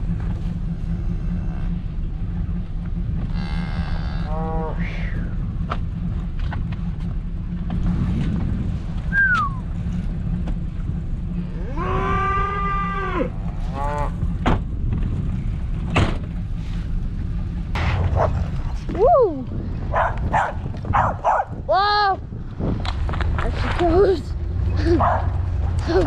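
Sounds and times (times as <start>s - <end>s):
steady low rumble: 0.0s - 26.0s
cattle bawling: 3.3s - 5.3s, 11.3s - 14.2s.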